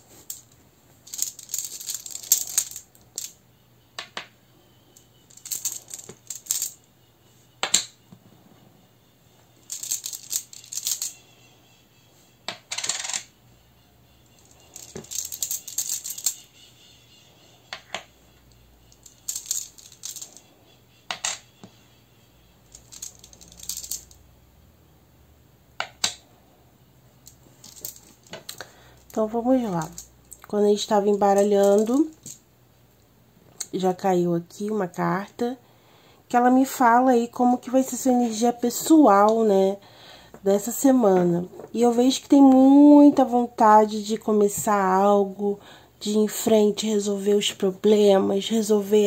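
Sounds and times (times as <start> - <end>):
tiles rattling in cloth bag: 0.0 - 3.3, 5.3 - 6.8, 9.7 - 11.2, 14.4 - 16.5, 19.1 - 20.4, 22.7 - 24.2, 27.4 - 30.1, 31.3 - 32.4
tiles clinking on table: 0.1 - 3.4, 5.3 - 6.8, 9.7 - 11.2, 12.5 - 13.3, 14.4 - 16.5, 19.0 - 20.5, 21.1 - 21.7, 22.8 - 24.2, 27.3 - 30.5, 31.3 - 32.4.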